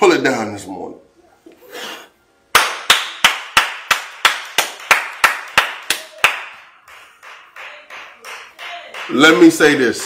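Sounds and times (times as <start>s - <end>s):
person clapping hands: 2.5s - 10.0s.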